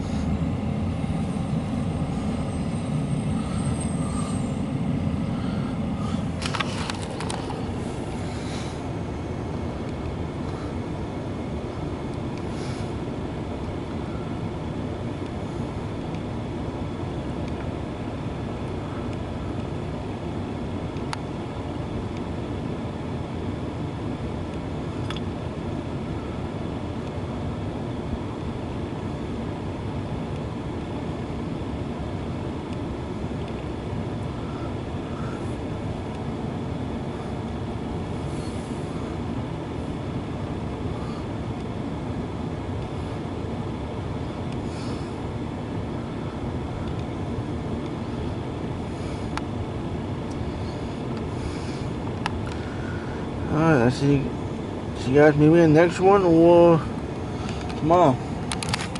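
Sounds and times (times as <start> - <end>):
freight cars rumbling on rails: 0.0 - 9.8.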